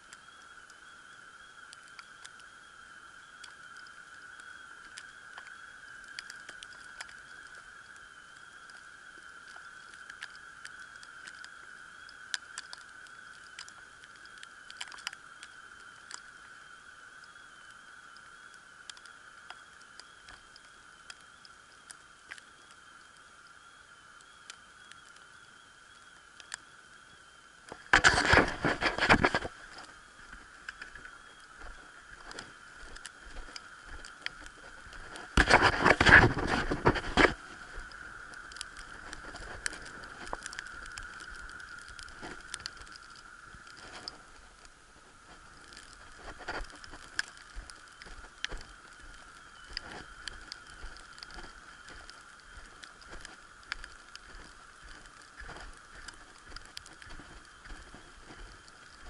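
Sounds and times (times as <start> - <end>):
small ticks and crackles: 0.0 - 59.0
wind on microphone: 27.9 - 29.8, 30.7 - 38.2.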